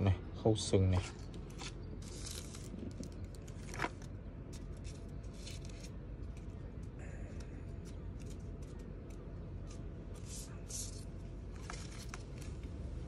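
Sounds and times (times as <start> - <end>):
packaging rustling and crinkling: 1.5 - 6.6.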